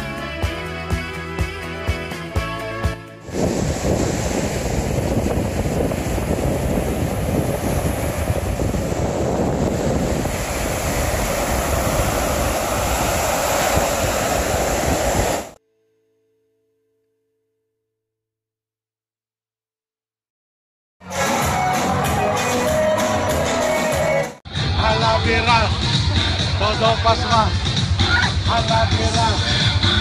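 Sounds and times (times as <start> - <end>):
wind noise on microphone: 3.2 - 15.6
surf washing onto beach: 3.3 - 15.6.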